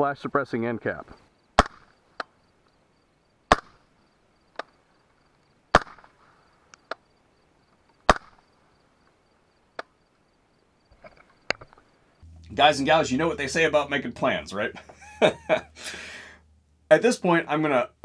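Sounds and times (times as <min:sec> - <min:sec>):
suppressed rifle shots: 0:01.6 - 0:02.0, 0:03.5 - 0:03.9, 0:05.7 - 0:06.2, 0:08.0 - 0:08.5
faint clicks: 0:06.7 - 0:07.0.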